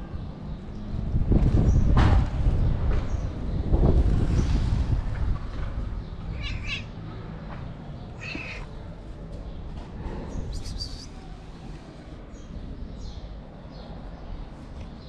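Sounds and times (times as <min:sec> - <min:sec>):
cat meowing: 0:06.3 - 0:06.9, 0:08.2 - 0:08.8.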